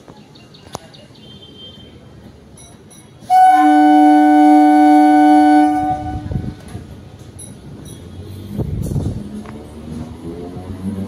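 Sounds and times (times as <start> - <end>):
train horn blast: 3.3 - 6.6.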